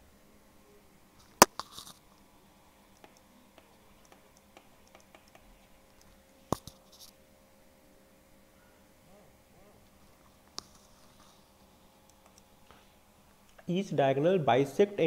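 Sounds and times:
stylus clicking on tablet: 3.0 - 5.5
stylus ticks while writing: 3.0 - 5.6.

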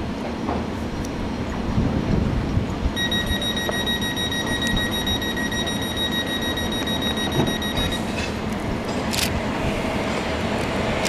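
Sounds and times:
train rumbling: 0.0 - 11.0
high-pitched buzzer tone: 3.0 - 8.1.

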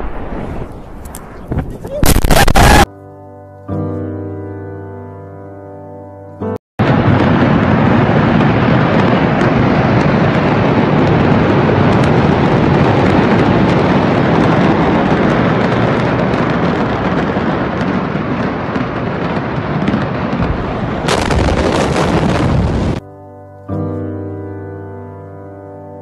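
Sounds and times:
rushing roar of dust cloud: 6.8 - 23.0.

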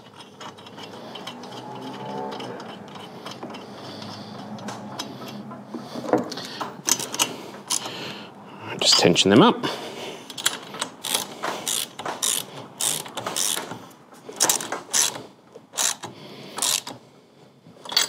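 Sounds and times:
ratchet clicking: 0.0 - 5.1, 10.3 - 13.8, 14.4 - 15.2, 15.8 - 17.0.

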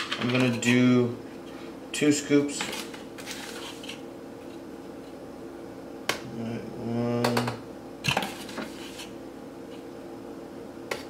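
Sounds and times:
person humming: 6.2 - 7.6.

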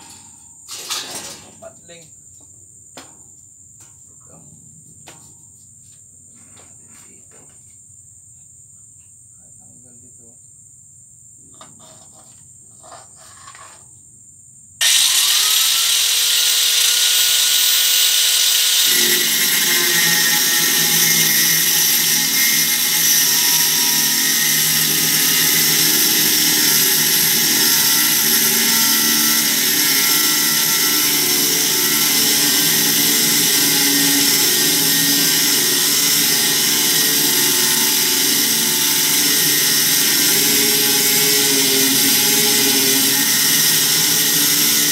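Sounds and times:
grinder disc grinding steel: 0.0 - 1.6, 14.8 - 44.9
angle grinder whine: 14.8 - 44.9.

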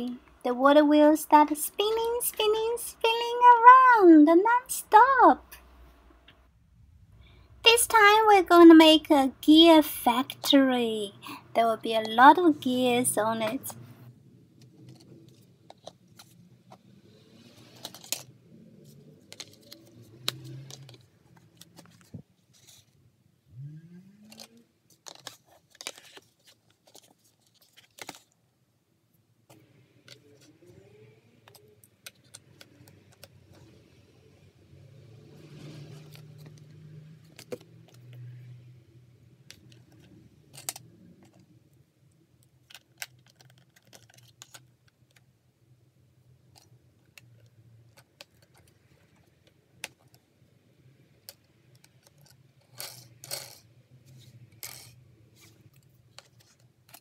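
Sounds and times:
plastic toy pieces clicking: 42.6 - 45.2, 51.2 - 53.7, 54.6 - 55.0.

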